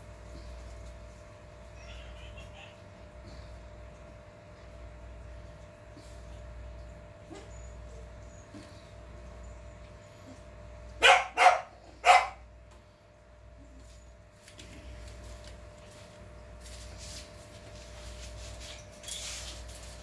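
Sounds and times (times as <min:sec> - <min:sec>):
puppy barking: 0:11.0 - 0:12.4.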